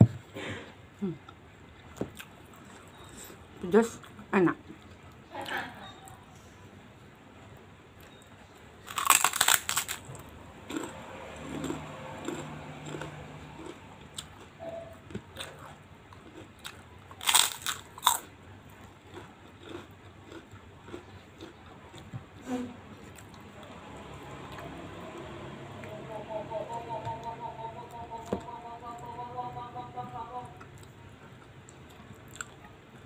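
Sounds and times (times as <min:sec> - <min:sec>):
crunching crisp cracker: 0:08.8 - 0:14.6, 0:15.4 - 0:22.1
quiet chewing: 0:09.0 - 0:23.7, 0:30.0 - 0:33.0.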